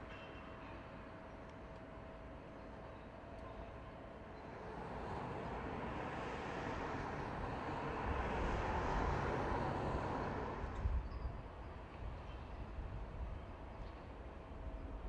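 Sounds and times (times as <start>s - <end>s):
diesel railcar rumble: 3.5s - 15.0s.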